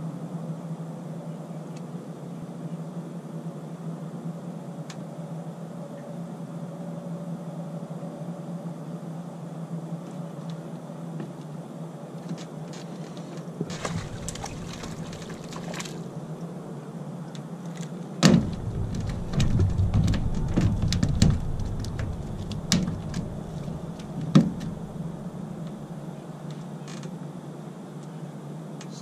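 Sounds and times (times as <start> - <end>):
steady low hum: 0.0 - 29.0
knocking on metal boat: 18.2 - 25.1.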